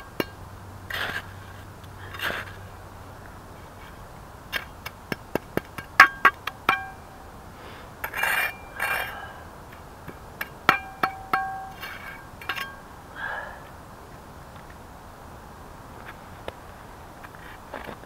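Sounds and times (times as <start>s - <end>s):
metal trowel clinking: 5.7s - 7.1s, 8.0s - 9.2s, 10.4s - 12.8s.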